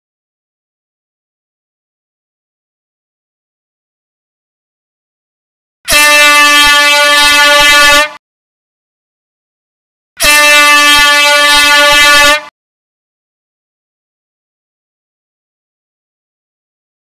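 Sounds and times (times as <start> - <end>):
air horn blasts: 5.9 - 8.2, 10.2 - 12.5.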